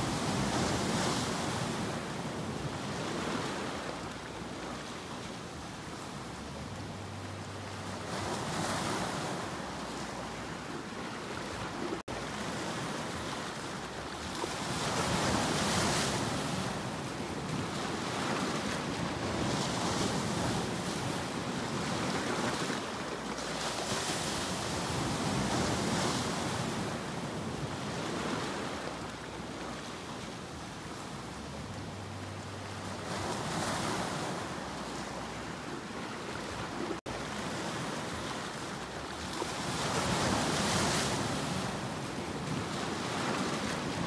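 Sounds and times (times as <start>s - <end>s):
sea waves breaking over rocks: 0.0s - 44.0s.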